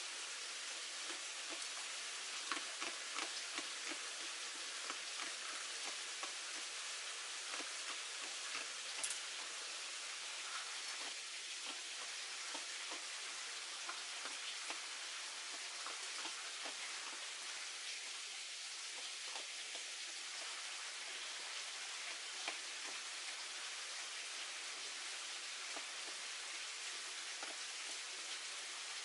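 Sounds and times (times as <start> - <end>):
light rain hissing: 0.0 - 29.0
soft clicks and ticks: 7.5 - 9.5, 22.1 - 23.0.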